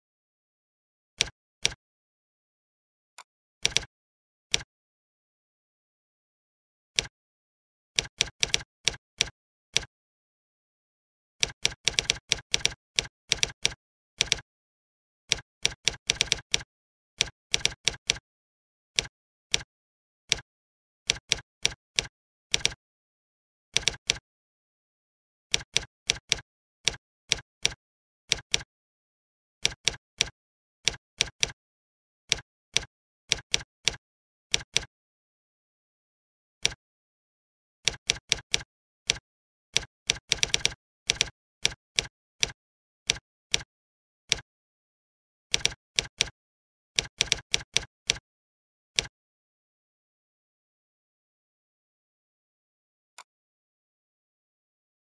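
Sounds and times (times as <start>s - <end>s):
keyboard typing clicks: 1.2s - 1.8s, 3.6s - 3.9s, 8.0s - 9.9s, 11.4s - 14.4s, 15.3s - 18.2s, 21.1s - 22.8s, 23.8s - 24.2s, 25.5s - 28.7s, 29.6s - 31.6s, 32.3s - 34.9s, 36.6s - 36.8s, 37.9s - 43.7s, 45.5s - 46.4s, 47.0s - 48.2s.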